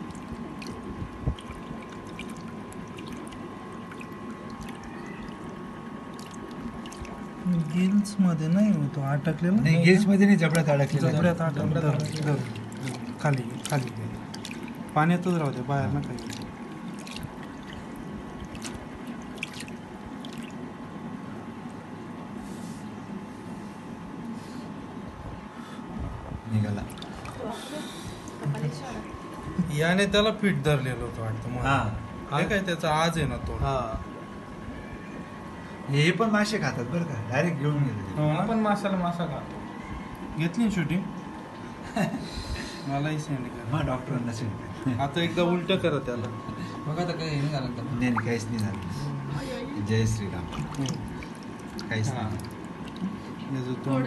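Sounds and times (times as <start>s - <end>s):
water trickling and sloshing: 0.0s - 8.9s, 9.8s - 20.8s, 26.8s - 29.3s, 47.8s - 53.8s
steady high hum: 0.0s - 54.0s
small wet clicks: 1.4s - 7.7s, 12.0s - 20.6s, 50.5s - 53.2s.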